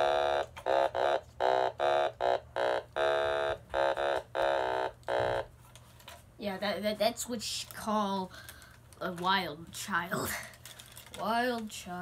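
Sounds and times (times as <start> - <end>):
electronic toy instrument melody: 0.0 - 5.5.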